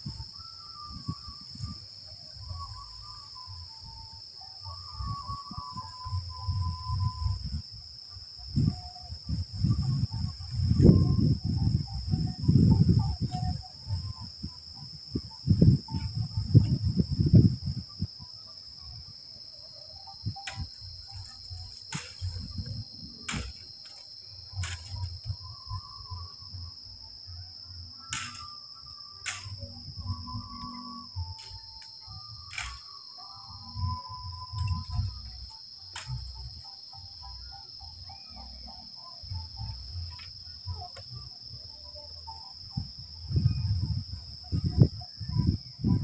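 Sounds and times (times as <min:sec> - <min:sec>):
insects droning: 0:00.0 - 0:46.0
wind buffeting microphone: 0:08.5 - 0:18.2, 0:42.8 - 0:46.0
sharp clicks: 0:20.4 - 0:22.7, 0:23.3 - 0:25.2, 0:28.1 - 0:28.5, 0:29.2 - 0:29.6, 0:31.4 - 0:32.9.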